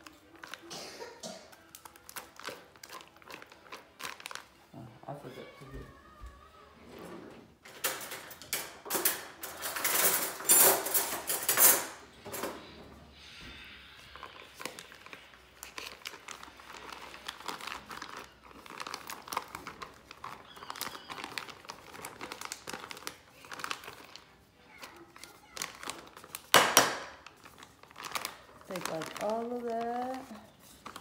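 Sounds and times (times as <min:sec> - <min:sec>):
plastic pack crinkling: 0:00.0 - 0:00.7, 0:01.5 - 0:05.8, 0:14.0 - 0:31.0
spoon scraping plastic bag: 0:00.0 - 0:00.7, 0:01.5 - 0:05.4, 0:13.4 - 0:31.0.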